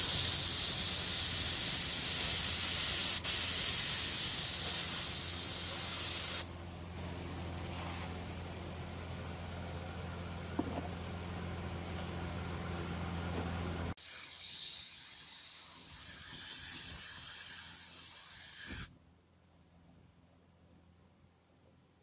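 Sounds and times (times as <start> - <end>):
paint spray hissing: 0.0 - 6.5.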